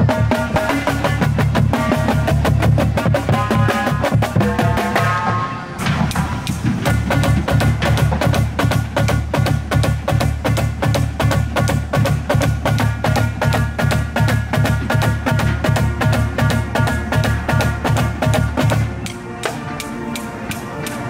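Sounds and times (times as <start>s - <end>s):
snare drums: 0.0s - 21.0s
tenor drums: 0.0s - 21.0s
low bass drums: 5.8s - 19.1s.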